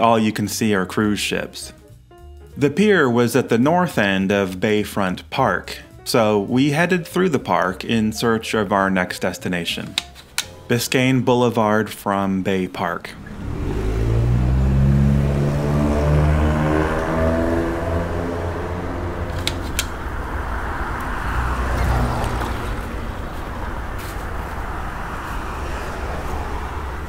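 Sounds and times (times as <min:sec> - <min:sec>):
hum of passing cars: 0:12.1 - 0:27.0
engine accelerating: 0:13.0 - 0:27.0.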